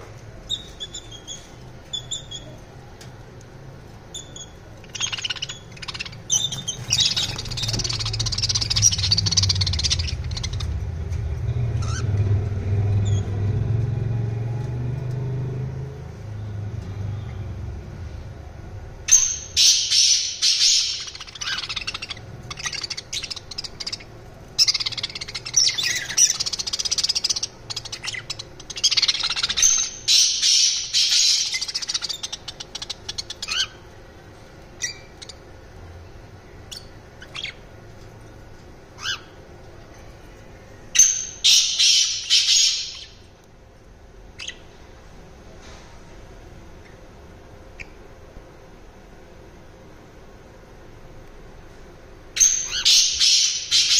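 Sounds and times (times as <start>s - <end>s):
parakeets chattering: 0.3s - 3.0s, 3.7s - 13.4s, 19.0s - 43.3s, 44.3s - 44.7s, 52.3s - 53.9s.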